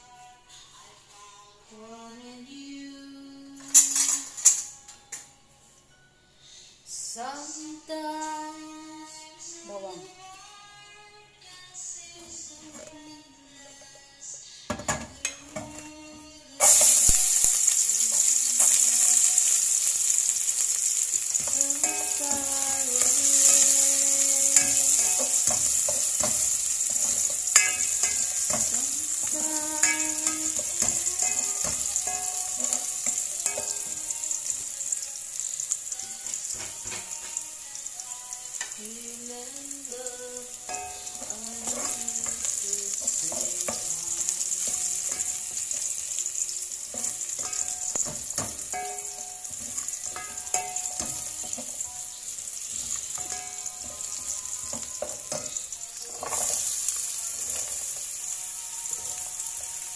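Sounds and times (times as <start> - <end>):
garlic sizzling in oil: 16.6 - 59.9.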